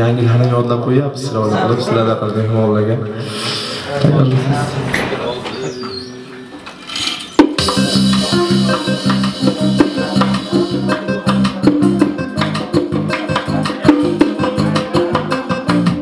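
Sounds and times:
frame drum beating fast rhythm: 0:07.4 - 0:16.0
plucked string instrument: 0:07.4 - 0:16.0.

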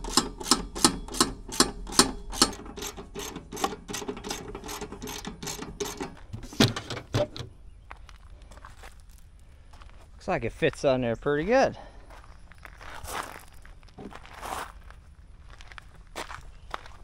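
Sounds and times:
ratchet wrench clicking: 0:00.0 - 0:06.2
thumps: 0:00.1 - 0:07.6.

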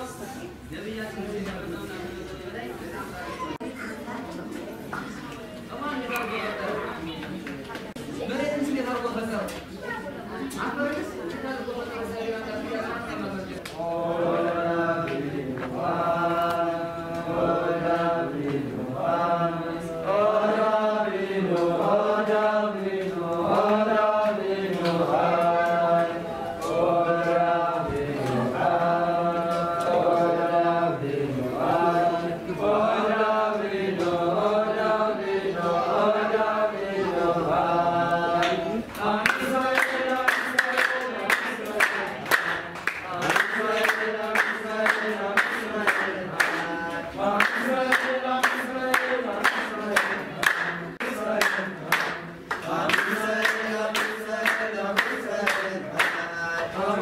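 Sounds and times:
men singing in unison: 0:13.8 - 0:57.0
hand clapping: 0:38.4 - 0:56.7.

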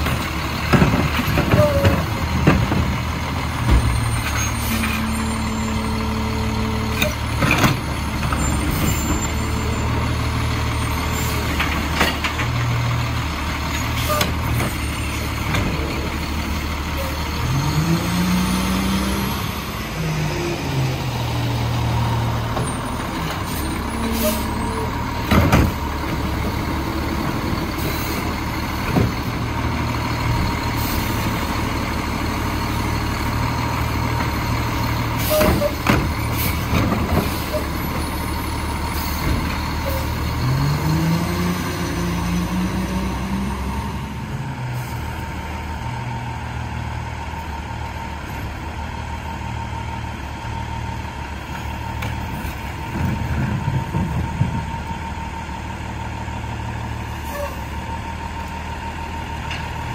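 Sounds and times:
metal clanks and knocks: 0:00.0 - 0:05.1
garbage truck engine drone: 0:00.0 - 0:59.9.

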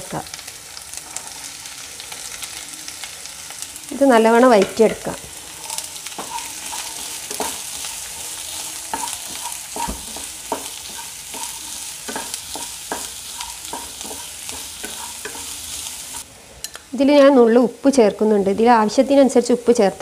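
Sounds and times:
onions sizzling in hot oil: 0:00.0 - 0:20.0
spatula scraping and tapping pan: 0:04.6 - 0:16.8.

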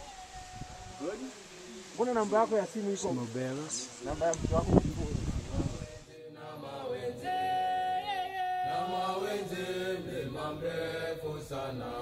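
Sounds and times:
voices chanting long notes: 0:05.8 - 0:12.0.

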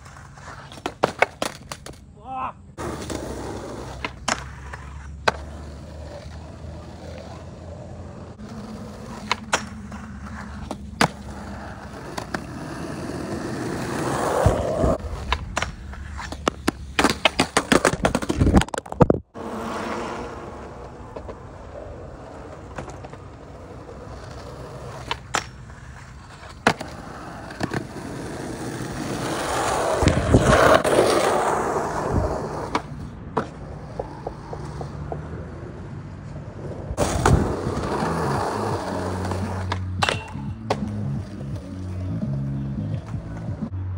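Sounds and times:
skateboard wheels rolling: 0:00.0 - 0:43.9
skateboard clacks on concrete: 0:13.9 - 0:19.2, 0:32.6 - 0:35.4.

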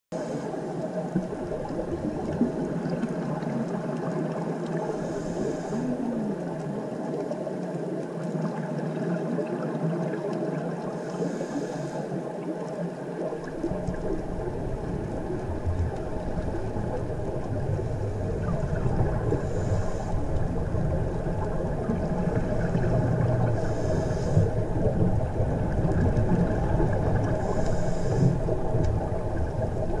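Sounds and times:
underwater rumble and hiss: 0:00.1 - 0:30.0
deeper rumble: 0:13.6 - 0:30.0.

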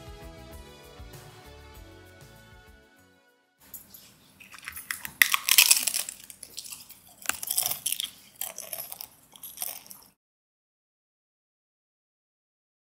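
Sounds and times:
crusty bread crunching: 0:04.4 - 0:10.1.

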